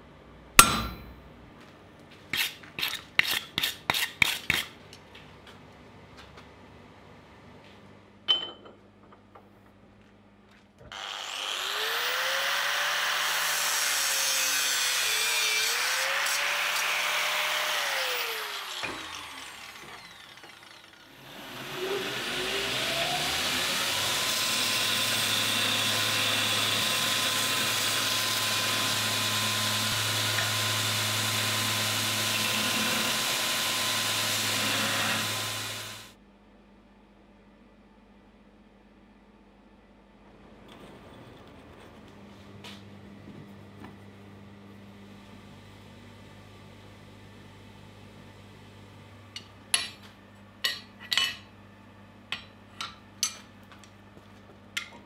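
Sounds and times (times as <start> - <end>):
angle grinder grinding steel: 10.9 - 36.1
belt sander grinding metal: 10.9 - 36.1.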